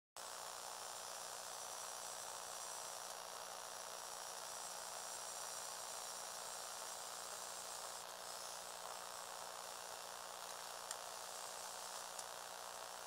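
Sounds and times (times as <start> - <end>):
faint high-pitched buzz: 0.2 - 13.0
steady hiss: 10.0 - 13.0.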